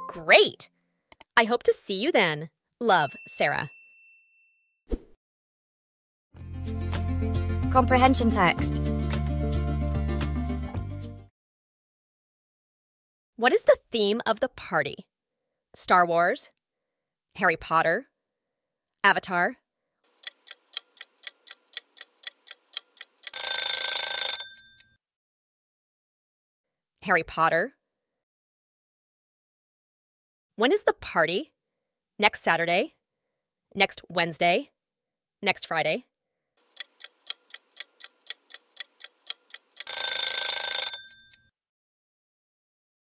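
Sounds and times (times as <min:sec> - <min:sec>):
clock ticking: 0:20.2 - 0:23.9, 0:36.7 - 0:41.0
alarm bell ringing: 0:23.3 - 0:24.8, 0:39.8 - 0:41.4.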